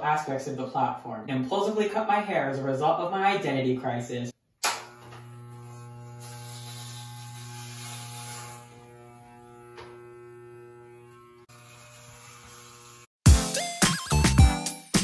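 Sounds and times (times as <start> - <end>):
electric hair clippers buzzing: 4.6 - 13.1.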